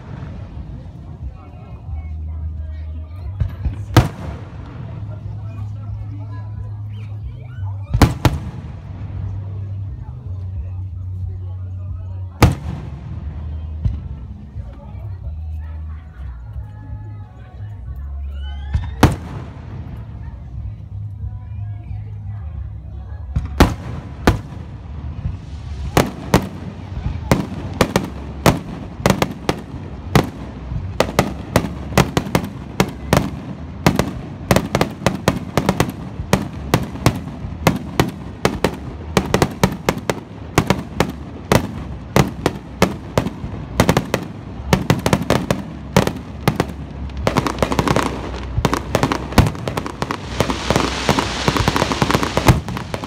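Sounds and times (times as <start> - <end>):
crackling hiss of fireworks: 0.0 - 53.0
fireworks bursting: 7.9 - 9.8, 18.7 - 20.3, 23.4 - 53.0.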